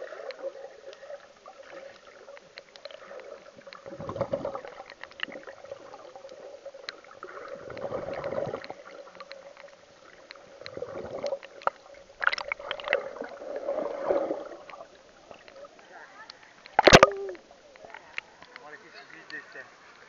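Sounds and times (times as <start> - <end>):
underwater sloshing rumble: 0.0 - 15.9
sharp underwater clicks and crackles: 0.0 - 20.0.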